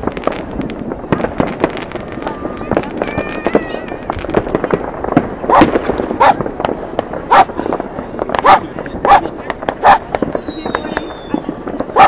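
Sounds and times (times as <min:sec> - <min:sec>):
fireworks bangs and pops: 0:00.0 - 0:12.0
dog barking: 0:05.5 - 0:06.4, 0:07.3 - 0:07.5, 0:08.4 - 0:10.0.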